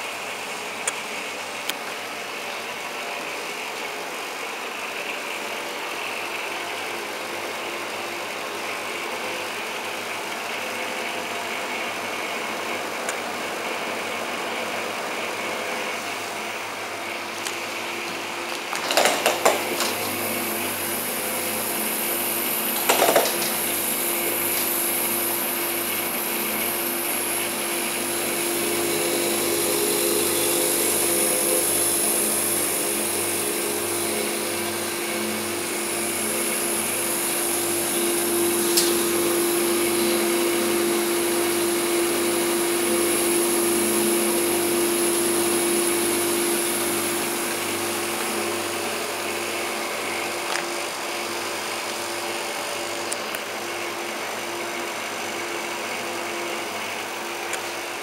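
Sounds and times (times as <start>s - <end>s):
machinery humming and whirring: 0.0s - 58.0s
high hiss: 19.6s - 49.2s.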